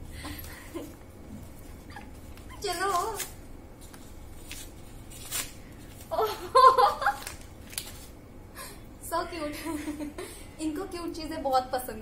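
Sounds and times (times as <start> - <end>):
paper wrapping rustling: 0.3 - 8.2
woman speaking: 2.5 - 3.3, 9.0 - 10.0, 10.6 - 12.0.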